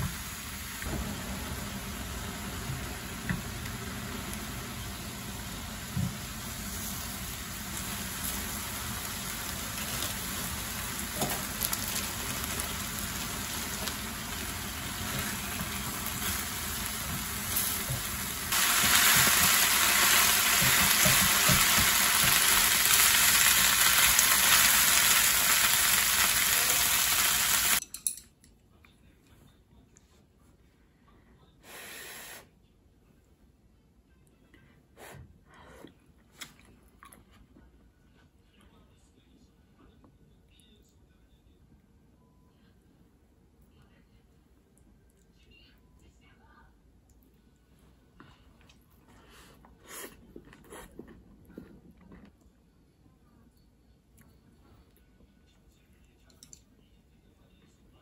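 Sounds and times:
meat sizzling in a frying pan: 0:01.4 - 0:27.8.

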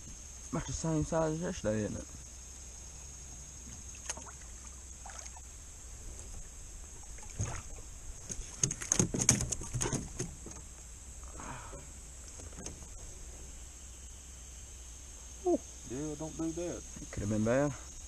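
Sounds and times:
insects droning: 0:00.0 - 0:18.0
fish knocking against metal hull: 0:08.2 - 0:10.6.

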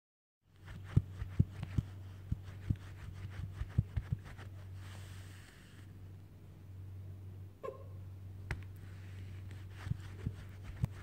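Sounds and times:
steady low hum: 0:00.5 - 0:11.0.

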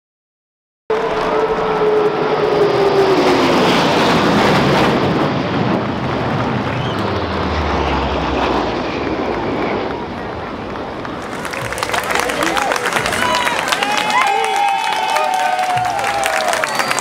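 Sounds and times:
aircraft passing overhead: 0:00.9 - 0:14.7.

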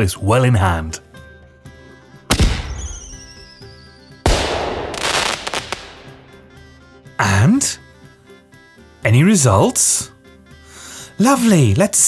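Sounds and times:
light background music: 0:00.0 - 0:12.0
falling whistle: 0:02.7 - 0:04.0
explosion bangs: 0:04.3 - 0:06.4.

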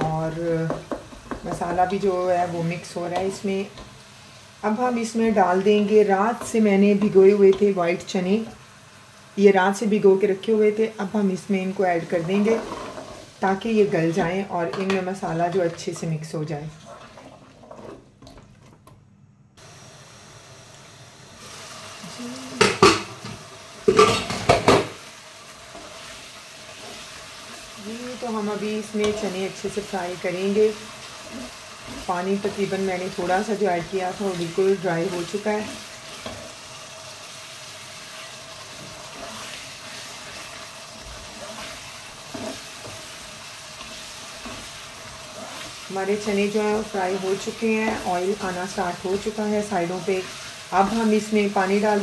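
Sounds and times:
food sizzling in oil: 0:00.0 - 0:18.0, 0:19.6 - 0:52.0
metal spatula scraping a pot: 0:12.2 - 0:13.3, 0:38.7 - 0:46.4.

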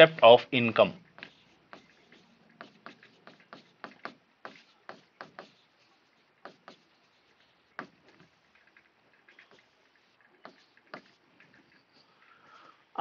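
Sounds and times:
marker pen tapping on board: 0:01.0 - 0:05.6, 0:06.4 - 0:07.0, 0:07.7 - 0:11.6.

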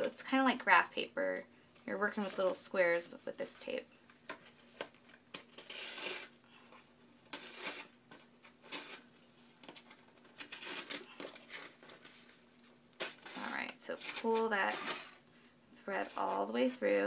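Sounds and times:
paper pages rustling: 0:04.1 - 0:15.2.

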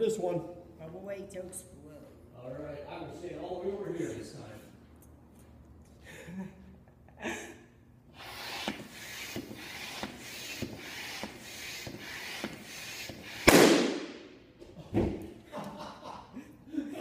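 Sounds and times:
hand air pump strokes: 0:08.1 - 0:13.5
balloon bursting bang: 0:12.4 - 0:14.3.

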